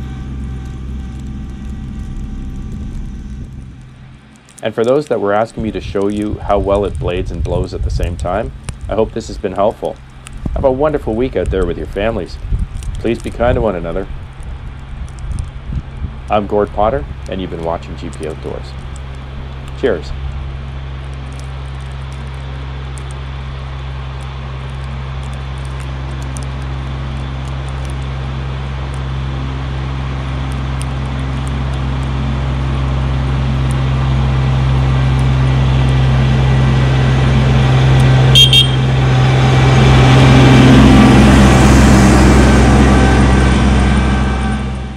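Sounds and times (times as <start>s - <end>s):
tractor diesel engine passing: 0.0s - 44.9s
horn toots: 37.6s - 44.9s.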